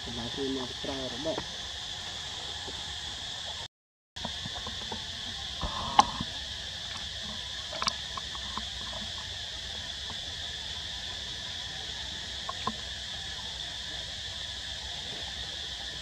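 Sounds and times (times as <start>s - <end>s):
high-pitched insect chorus: 0.0s - 16.0s.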